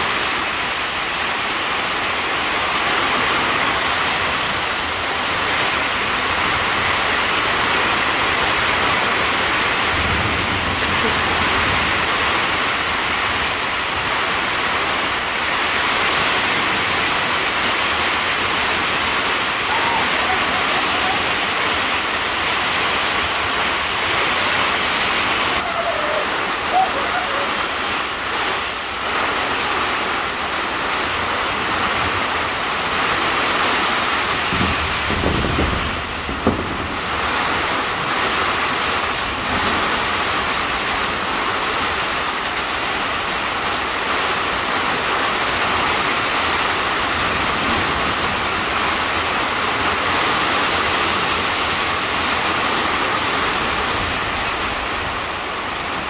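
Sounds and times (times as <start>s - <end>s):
heavy rain on metal roof: 0.0s - 56.0s.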